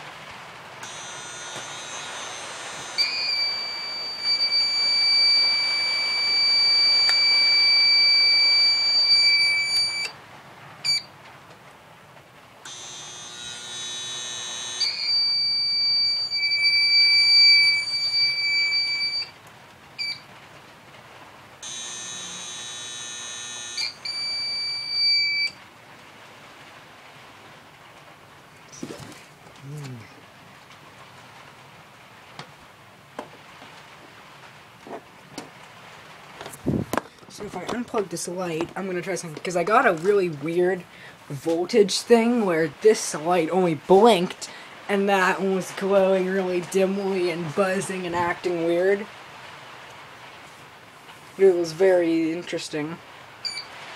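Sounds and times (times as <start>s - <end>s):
rough buzzing: 0.8s - 7.4s, 12.7s - 17.9s, 21.6s - 24.2s
high-pitched alarm beeper tone: 0.8s - 10.1s, 12.7s - 19.3s, 21.6s - 25.6s.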